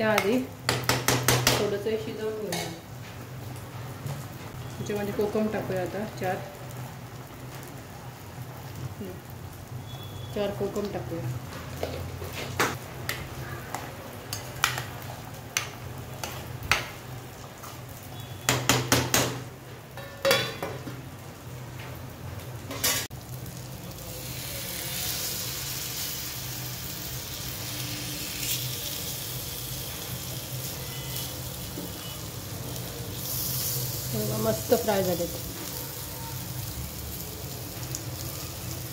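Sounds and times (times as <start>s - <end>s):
fish sizzling in hot oil: 4.6s - 11.3s, 14.3s - 18.5s, 23.0s - 38.9s.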